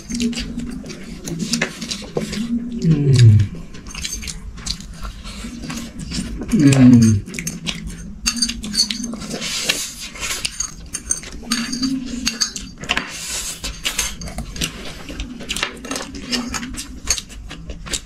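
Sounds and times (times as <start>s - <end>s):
cutlery and dishes clinking: 5.6s - 18.0s.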